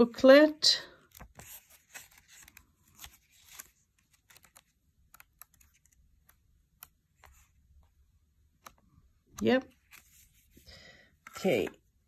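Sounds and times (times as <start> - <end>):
paper pages rustling and flicking: 1.0 - 7.6, 9.7 - 10.6.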